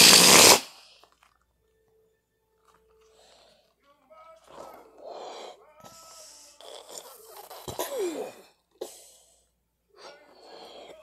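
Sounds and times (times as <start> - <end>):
balloon squeal: 0.0 - 0.8
child blowing into balloon: 0.0 - 0.9.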